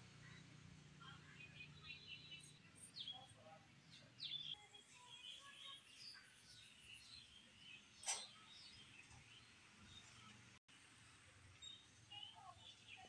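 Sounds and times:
small birds chirping: 0:00.1 - 0:13.0
sharp click: 0:08.0 - 0:08.3.

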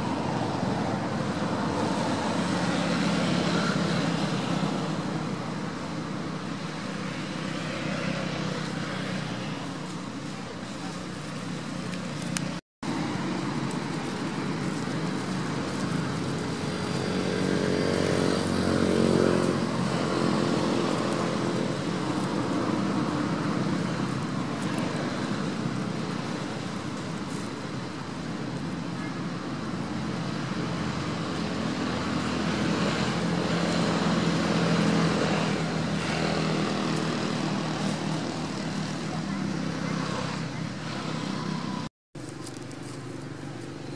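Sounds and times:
vehicle engines running: 0:00.0 - 0:43.9.

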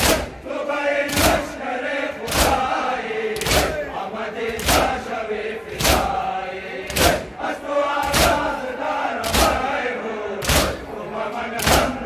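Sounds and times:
group chest slaps: 0:00.0 - 0:00.4, 0:01.1 - 0:01.5, 0:02.2 - 0:02.7, 0:03.4 - 0:03.8, 0:04.6 - 0:05.0, 0:05.7 - 0:06.2, 0:06.9 - 0:07.3, 0:08.0 - 0:08.5, 0:09.2 - 0:09.7, 0:10.4 - 0:10.9, 0:11.6 - 0:12.0
crowd chanting: 0:00.0 - 0:12.0.

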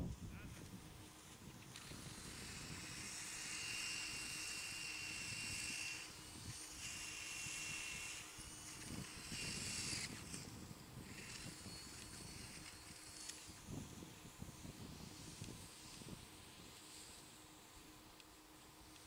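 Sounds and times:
faint thin whine: 0:00.0 - 0:19.0
ice auger grinding through ice: 0:01.7 - 0:13.8.

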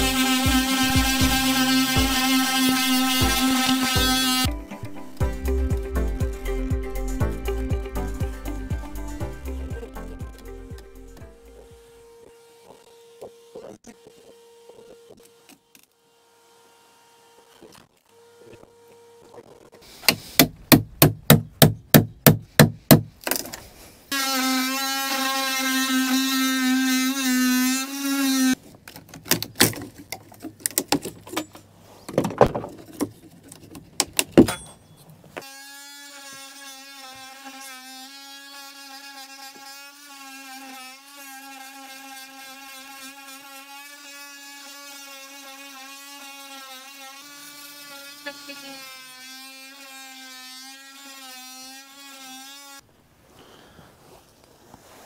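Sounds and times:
small power tool buzzing: 0:00.0 - 0:20.4, 0:24.1 - 0:28.6, 0:35.4 - 0:52.9
knocking blows: 0:20.0 - 0:23.2.

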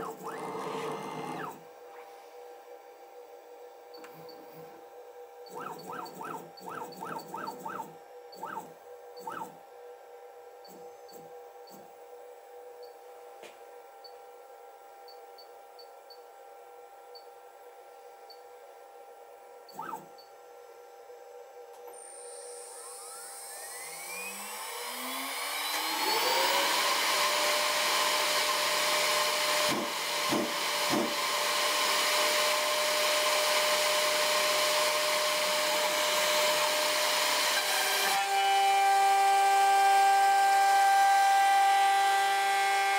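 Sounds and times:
spindle whine spinning up: 0:21.9 - 0:27.5.

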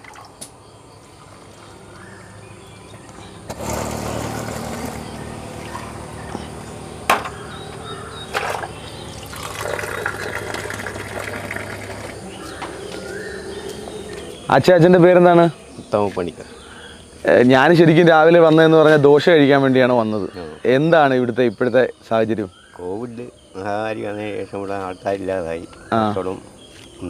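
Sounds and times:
metal vessels knocking: 0:07.0 - 0:12.2
liquid pouring into a glass: 0:09.2 - 0:12.2.

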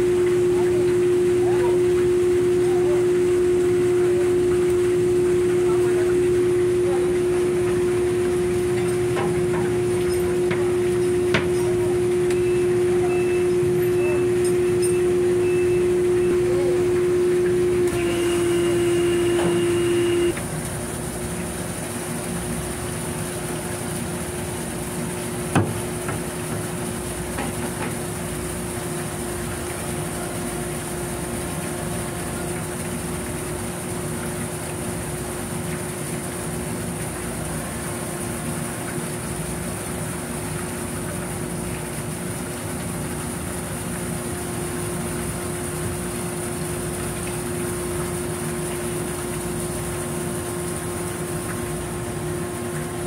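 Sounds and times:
machinery droning hum: 0:00.0 - 0:20.6.

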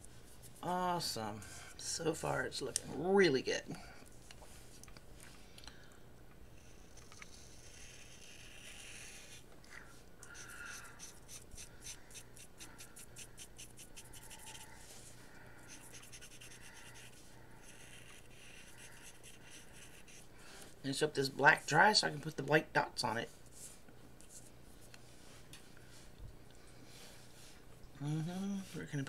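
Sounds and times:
marker scratching on paper: 0:06.6 - 0:09.4, 0:10.4 - 0:14.6, 0:15.7 - 0:20.3.

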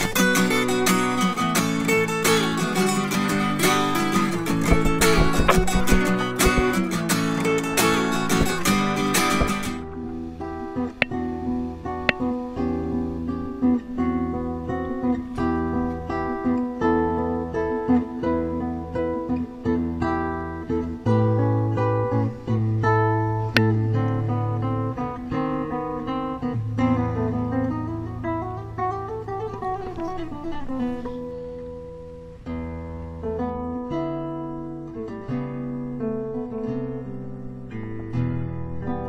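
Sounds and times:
solo acoustic guitar: 0:00.0 - 0:39.0.

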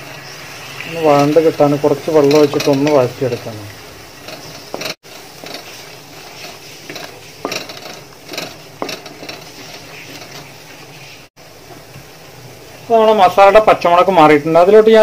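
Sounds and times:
low steady sizzle: 0:00.0 - 0:15.0
wooden spatula scraping metal pot: 0:00.9 - 0:11.3.

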